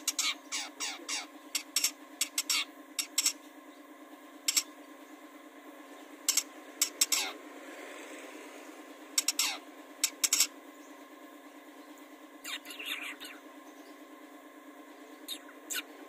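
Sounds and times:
bird chattering and whistling: 0.0 - 3.1, 9.2 - 10.5, 12.4 - 14.0, 15.2 - 16.0.

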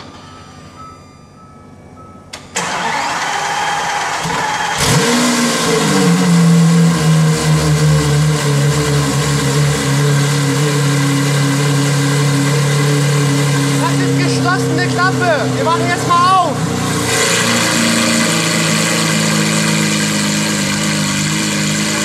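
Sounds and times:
car engine starting and idling: 0.0 - 22.0
starter motor spinning: 2.6 - 6.9.

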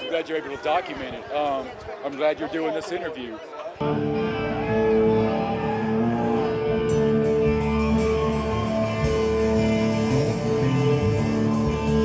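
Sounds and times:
rock music with ringing chords: 3.8 - 12.0.

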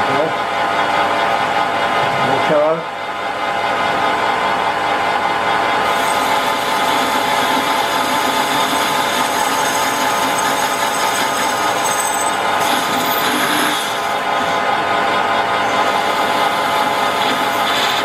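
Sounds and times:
metal lathe whine: 5.8 - 18.0
tool cutting metal hiss: 5.9 - 14.6, 15.7 - 18.0.

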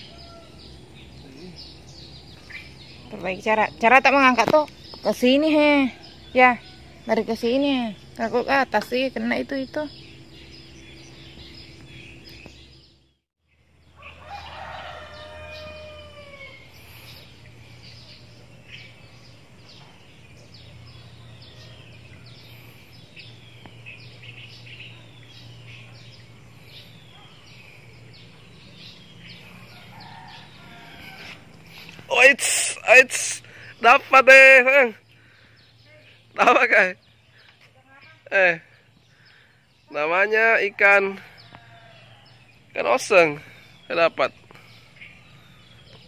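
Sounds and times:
rooster crowing: 0.0 - 0.7, 13.9 - 16.8, 29.3 - 31.6, 41.3 - 42.5
small birds chirping: 0.0 - 46.0.

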